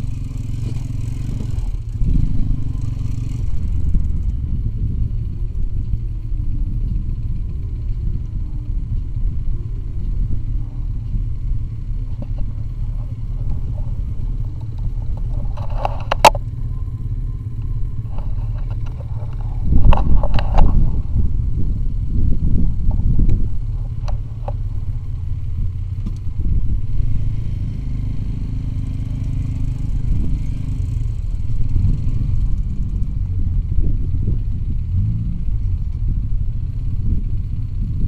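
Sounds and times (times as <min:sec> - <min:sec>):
rattling and clatter: 0:00.0 - 0:16.6, 0:17.5 - 0:21.8
motorcycle engine running: 0:00.0 - 0:38.0.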